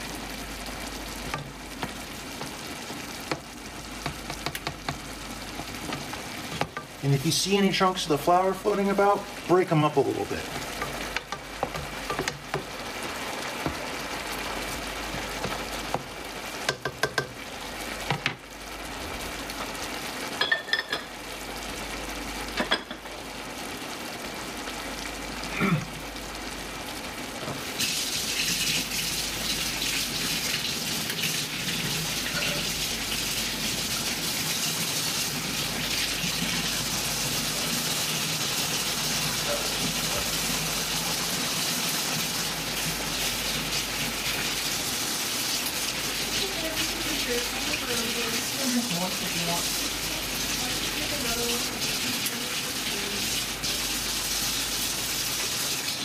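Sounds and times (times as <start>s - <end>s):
food sizzling in a frying pan: 0.0s - 56.0s
stirring utensil clinking: 16.7s - 17.4s, 32.2s - 32.8s.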